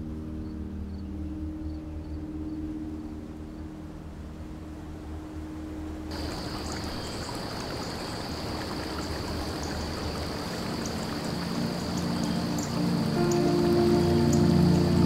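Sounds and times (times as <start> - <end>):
low steady hum: 0.0 - 15.0
running water rushing: 5.0 - 15.0.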